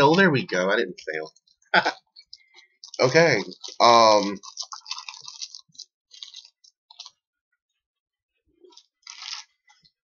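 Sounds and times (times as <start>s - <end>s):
biscuit stick crunching: 2.2s - 7.2s, 8.7s - 9.9s.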